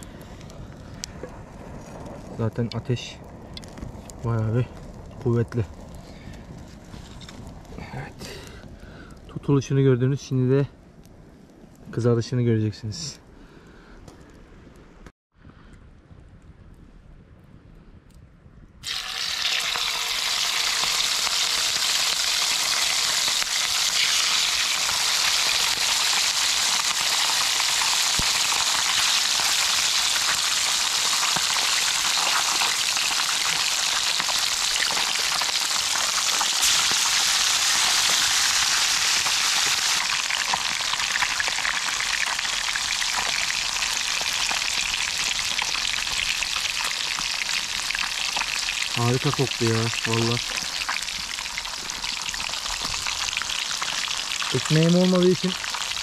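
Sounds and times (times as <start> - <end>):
fish sizzling in hot oil: 18.8 - 56.0.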